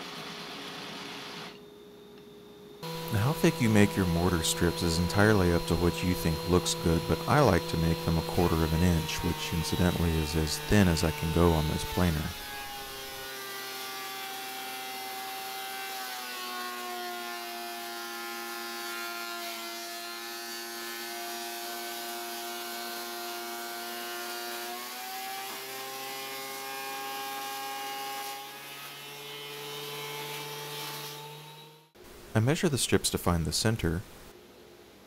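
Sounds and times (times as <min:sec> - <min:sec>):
thickness planer running: 0:02.8 - 0:15.9.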